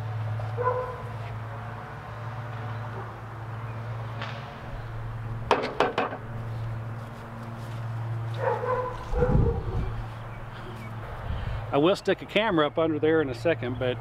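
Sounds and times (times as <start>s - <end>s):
sharp knocks: 5.5s - 6.3s.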